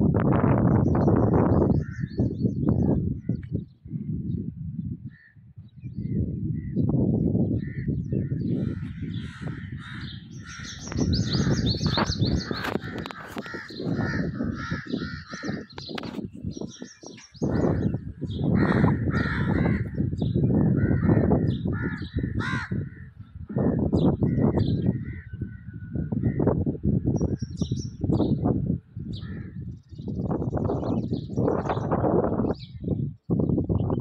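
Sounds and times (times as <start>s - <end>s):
wind rumble on microphone: 0.0s - 34.0s
small birds chirping: 5.1s - 25.4s, 27.1s - 34.0s
crows cawing: 8.5s - 15.9s, 16.8s - 26.5s.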